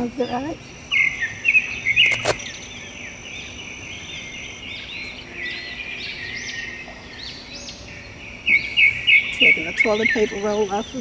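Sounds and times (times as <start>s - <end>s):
birds chirping: 0.0s - 11.0s
sharp click: 2.0s - 2.5s.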